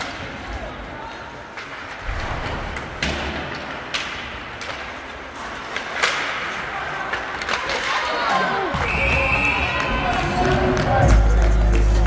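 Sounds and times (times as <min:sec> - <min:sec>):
arena crowd hubbub: 0:00.0 - 0:12.0
hockey sticks and puck knocking: 0:01.5 - 0:09.2.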